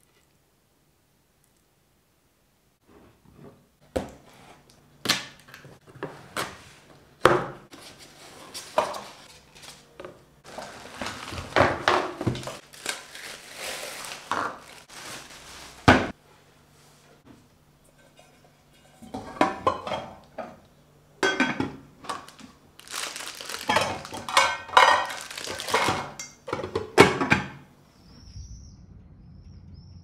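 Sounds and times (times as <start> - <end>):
rustling of plastic wrapping: 7.7 - 16.2, 22.1 - 26.2.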